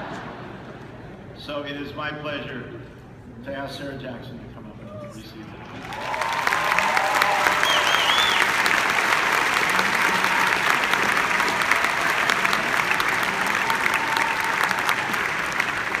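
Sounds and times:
large audience applauding: 0:05.6 - 0:16.0.

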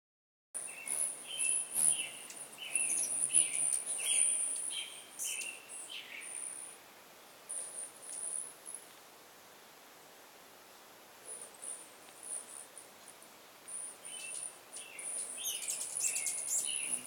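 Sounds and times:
hummingbirds buzzing trills: 0:00.6 - 0:06.8, 0:13.6 - 0:17.0
hummingbirds squeaky chirps: 0:00.6 - 0:08.9, 0:11.3 - 0:17.0.

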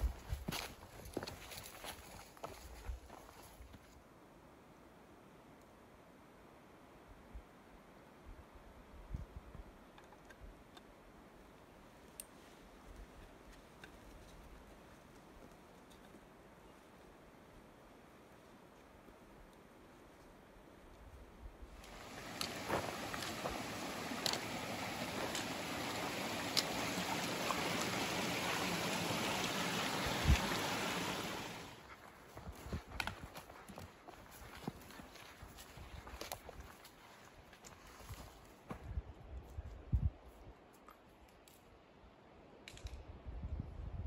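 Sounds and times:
trekking poles clicking on rock: 0:21.8 - 0:28.8
creek trickling over stones: 0:21.8 - 0:31.8.

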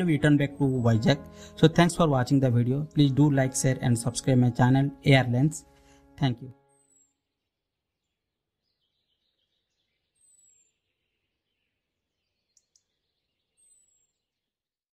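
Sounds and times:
faint bird chirp: 0:08.0 - 0:14.6
faint ticks: 0:12.5 - 0:12.9.

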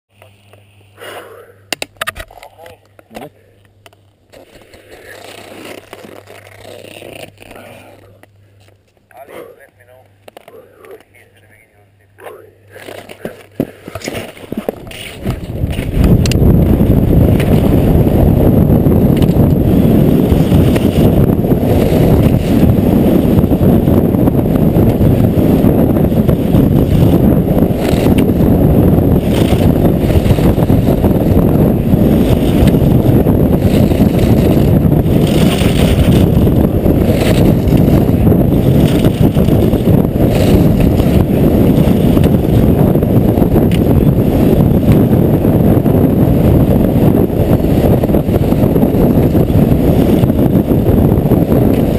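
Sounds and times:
wind buffeting microphone: 0:12.7 - 0:51.9.

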